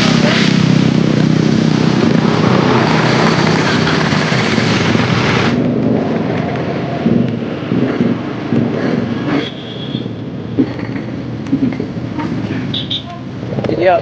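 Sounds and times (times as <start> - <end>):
motor scooter engines humming: 0.0 - 14.0
wind and road noise: 0.0 - 14.0.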